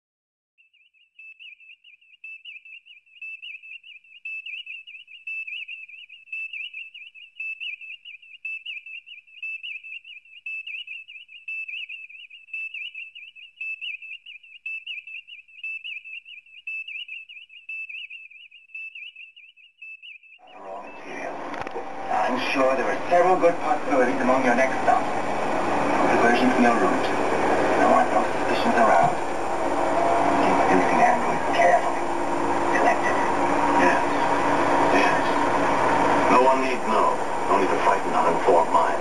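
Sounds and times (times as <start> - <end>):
wavering high whistle tone: 0.7 - 21.0.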